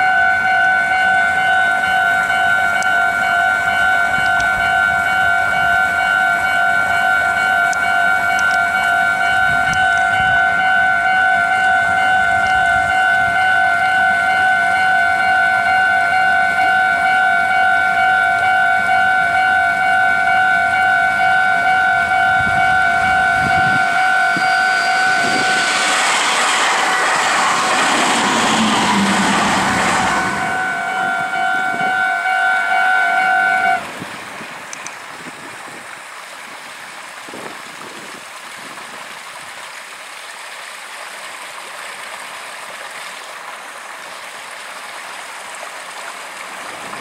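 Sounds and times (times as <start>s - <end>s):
level-crossing electronic bell: 0.0s - 33.6s
train wheel and rail noise: 0.0s - 39.8s, 41.1s - 47.0s.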